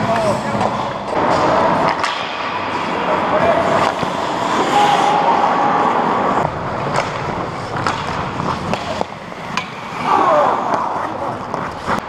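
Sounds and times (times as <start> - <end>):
hockey sticks and puck clacking: 0.0 - 12.0
skate blades scraping on ice: 6.4 - 12.0.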